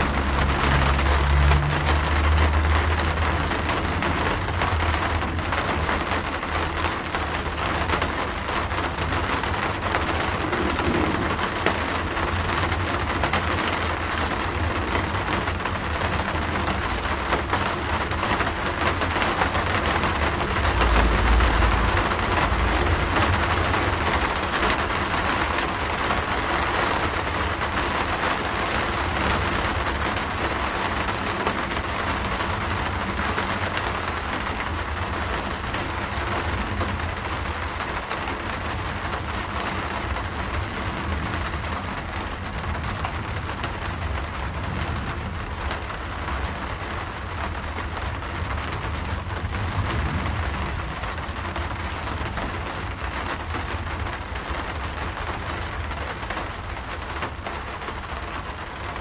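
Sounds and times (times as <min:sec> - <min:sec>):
low rumble: 0:00.0 - 0:17.1, 0:19.0 - 0:25.6
dense rain: 0:00.0 - 0:59.0.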